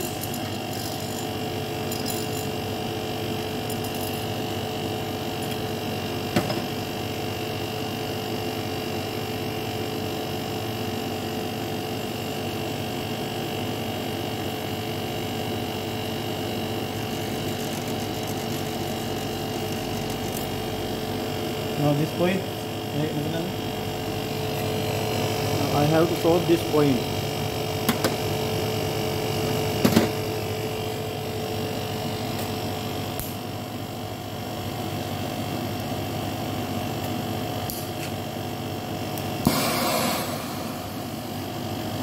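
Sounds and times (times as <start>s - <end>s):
air conditioner humming: 11.0s - 42.0s.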